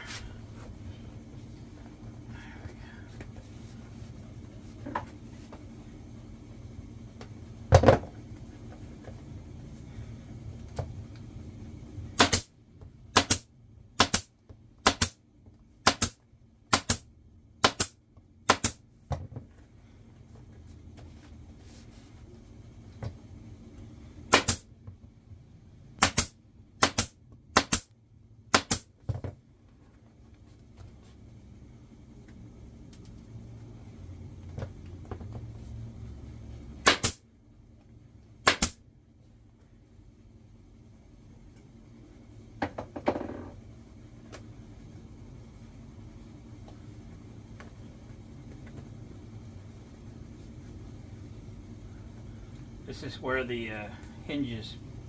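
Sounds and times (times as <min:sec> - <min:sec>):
pneumatic staple gun firing: 0:12.2 - 0:12.5, 0:13.1 - 0:13.4, 0:14.0 - 0:15.2, 0:15.8 - 0:17.0, 0:17.6 - 0:18.8, 0:24.4 - 0:24.6, 0:26.0 - 0:27.9, 0:28.5 - 0:28.9, 0:36.8 - 0:37.2, 0:38.5 - 0:38.8.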